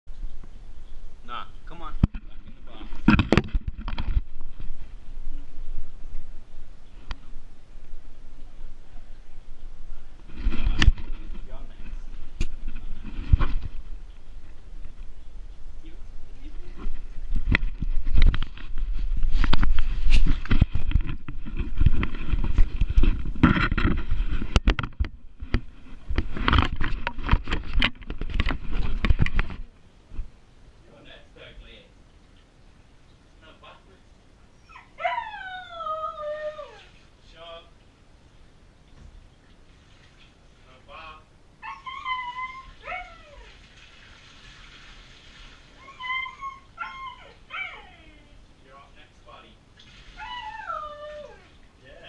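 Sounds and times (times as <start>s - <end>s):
husky pups whining: 34.5s - 37.0s, 41.6s - 43.6s, 45.8s - 48.4s, 50.1s - 51.6s.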